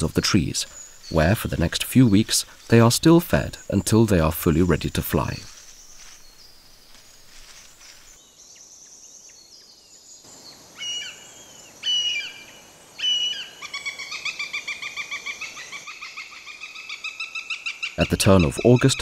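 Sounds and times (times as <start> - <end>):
hawk calling: 10.8 - 19.0.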